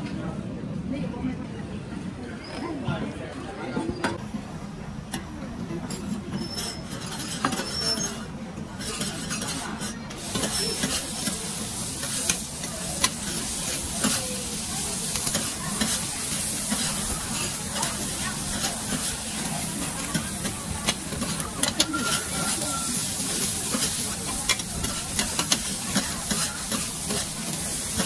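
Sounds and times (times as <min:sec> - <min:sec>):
metal spatula scraping wok: 0:05.9 - 0:28.0
food sizzling in a wok: 0:08.8 - 0:28.0.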